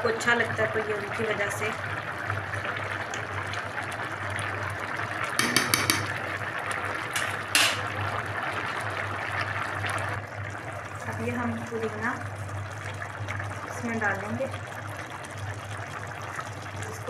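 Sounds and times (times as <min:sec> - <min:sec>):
liquid bubbling in a pot: 0:00.0 - 0:17.0
utensil clanking on pot: 0:05.4 - 0:06.3, 0:07.1 - 0:07.9.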